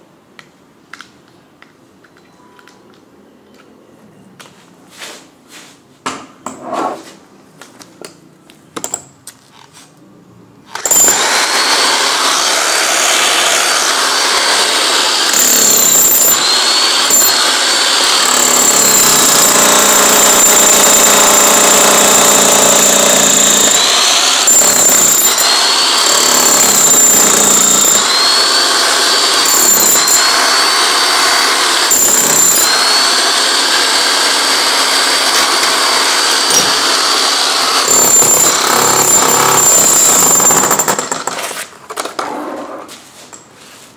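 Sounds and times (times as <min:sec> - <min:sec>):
demolition hammer chiselling concrete: 0:10.8 - 0:41.6.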